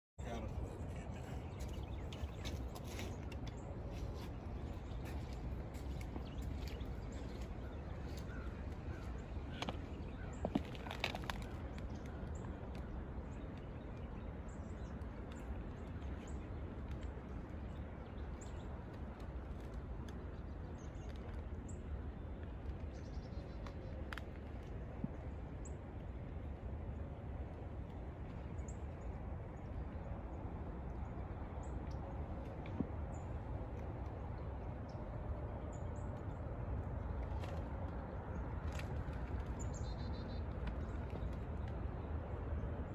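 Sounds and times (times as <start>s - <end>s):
birds chirping: 0.2s - 25.8s, 28.0s - 42.9s
steady low rumble: 0.2s - 42.9s
sharp clicks and crackles: 9.5s - 12.9s.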